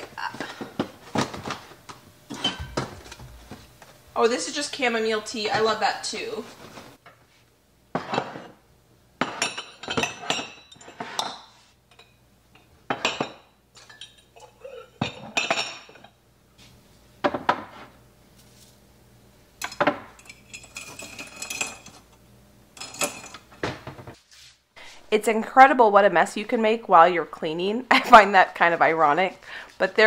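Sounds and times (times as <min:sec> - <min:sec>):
dishes and glassware clinking: 0:02.3 - 0:03.2, 0:08.0 - 0:08.6, 0:09.2 - 0:16.2, 0:19.6 - 0:22.0, 0:22.8 - 0:23.5.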